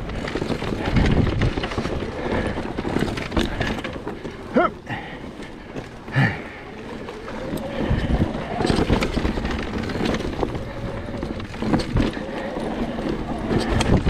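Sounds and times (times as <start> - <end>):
bike rattling over bumps: 0.0 - 14.0
bike tyre noise on dirt: 0.0 - 14.0.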